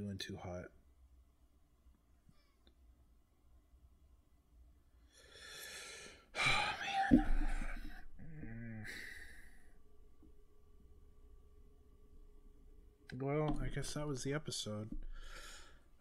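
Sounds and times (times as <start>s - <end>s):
person breathing heavily: 5.0s - 9.7s, 15.0s - 16.0s
person sighing: 5.8s - 9.7s
person moaning: 6.4s - 9.4s.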